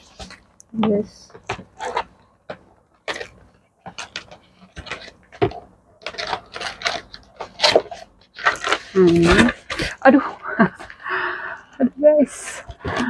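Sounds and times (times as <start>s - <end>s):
cardboard box crackling: 3.0s - 11.0s.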